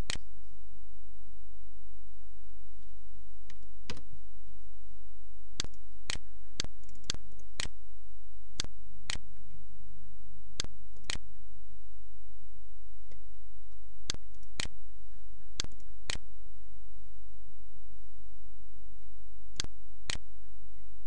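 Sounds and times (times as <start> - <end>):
steady low hum: 0.0 - 21.0
mouse buttons clicking: 5.6 - 7.8, 10.6 - 11.2, 13.1 - 14.8, 15.4 - 16.2.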